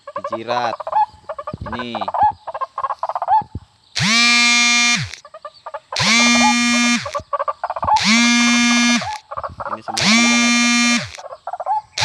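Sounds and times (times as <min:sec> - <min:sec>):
short chattering bird calls: 0:00.0 - 0:12.0
waterhen nasal calls: 0:00.0 - 0:12.0.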